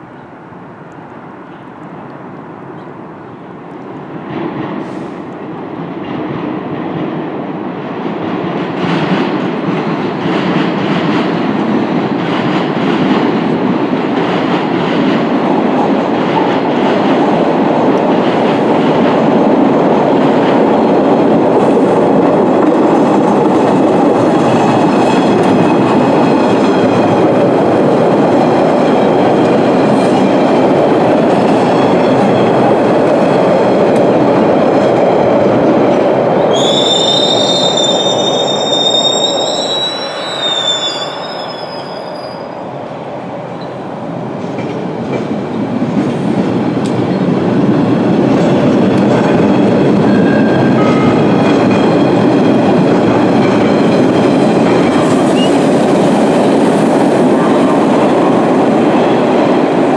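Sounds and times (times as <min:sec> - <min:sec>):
subway train rumble: 0:00.0 - 0:59.9
high wheel squeal: 0:36.5 - 0:42.6.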